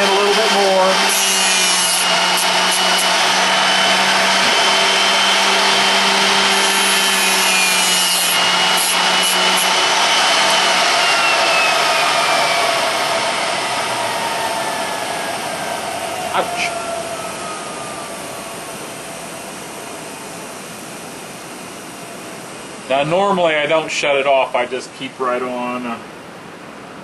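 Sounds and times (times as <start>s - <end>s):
wheel grinding drill bit: 0.0s - 16.8s
motor whine spinning down: 0.0s - 23.1s.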